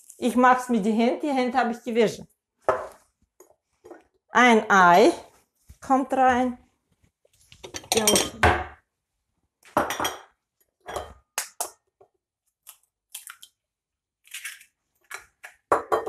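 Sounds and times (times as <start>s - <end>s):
crockery clinking: 7.6s - 8.7s
eggshell cracking: 12.6s - 13.6s.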